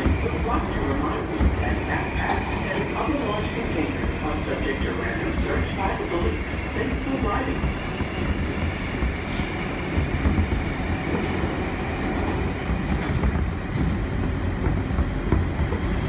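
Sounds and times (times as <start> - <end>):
subway car rumbling on rails: 0.0 - 16.0.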